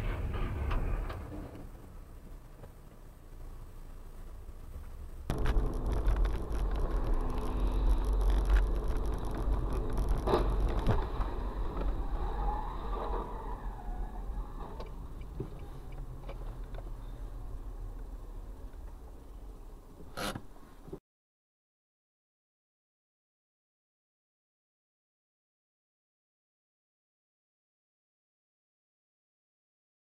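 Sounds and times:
car road and engine rumble: 0.0s - 21.0s.

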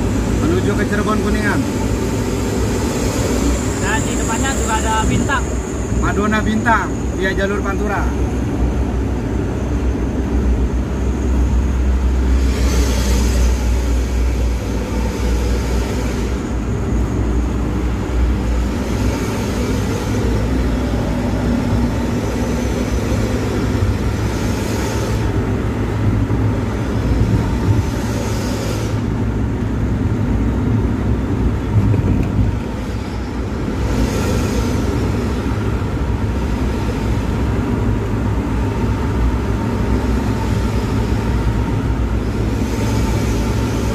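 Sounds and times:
vehicle engine and road rumble: 0.0s - 43.9s
rushes of hissing noise: 9.6s - 29.6s, 32.5s - 38.6s.

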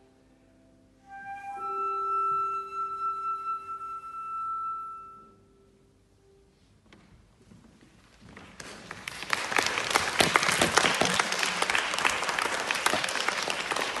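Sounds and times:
audience applause: 8.8s - 14.0s.

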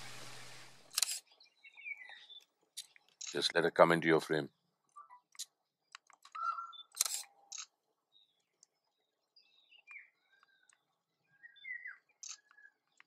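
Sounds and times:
camera shutters clicking: 0.9s - 1.2s, 6.9s - 7.7s, 12.2s - 12.5s
faint bird chirps: 1.2s - 3.1s, 4.8s - 5.4s, 6.3s - 13.0s.

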